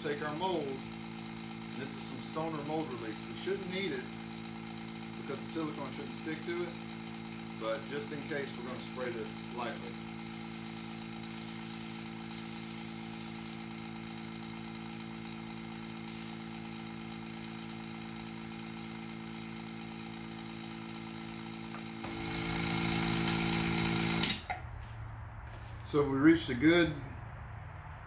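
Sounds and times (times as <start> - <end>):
vacuum pump humming: 0.0 - 24.9
aerosol spray hissing: 0.7 - 15.0, 15.7 - 17.1.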